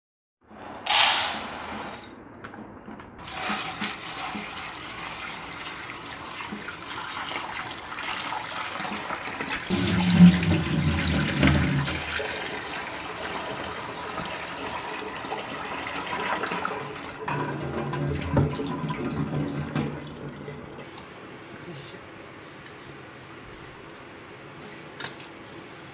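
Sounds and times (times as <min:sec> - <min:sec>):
tap water splashing into pot: 0:03.2 - 0:09.7.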